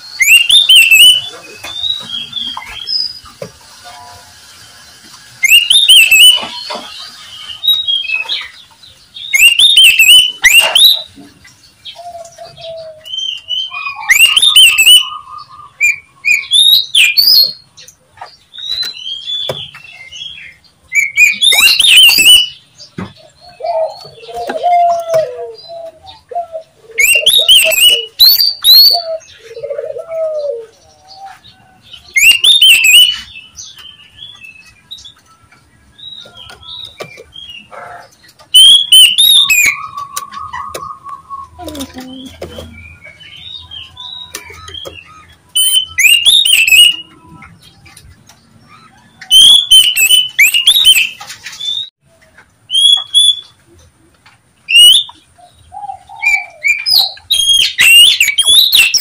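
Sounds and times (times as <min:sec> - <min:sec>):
bird chirping and whistling: 0:00.0 - 0:03.2, 0:05.4 - 0:08.6, 0:09.2 - 0:11.1, 0:12.4 - 0:17.6, 0:18.6 - 0:22.6, 0:27.0 - 0:30.6, 0:32.1 - 0:34.8, 0:38.5 - 0:47.3, 0:49.2 - 0:51.9, 0:52.7 - 0:53.6, 0:54.7 - 0:55.2, 0:56.1 - 0:59.0.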